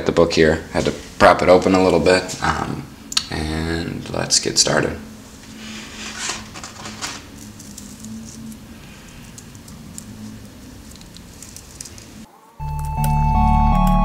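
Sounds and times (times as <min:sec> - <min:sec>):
low steady hum: 0:00.0 - 0:12.9
small components rattling by hand: 0:09.2 - 0:12.3.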